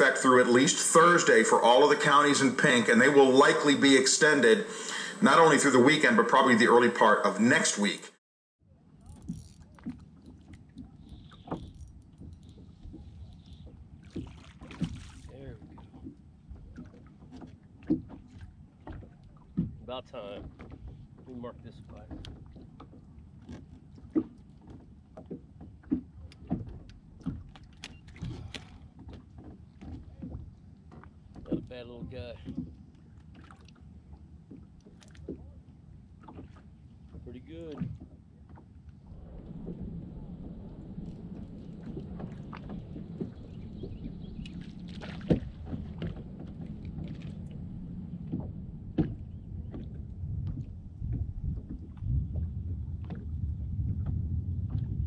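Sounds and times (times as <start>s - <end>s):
waves slapping boat hull: 0.0s - 8.0s, 8.8s - 55.0s
steady low hum: 38.2s - 55.0s
low rumble: 39.0s - 55.0s.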